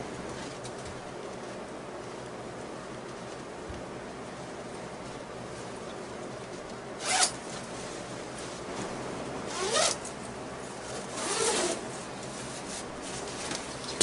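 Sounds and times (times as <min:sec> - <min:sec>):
zipper being pulled open: 0:07.0 - 0:07.4, 0:09.5 - 0:10.1, 0:11.0 - 0:11.9.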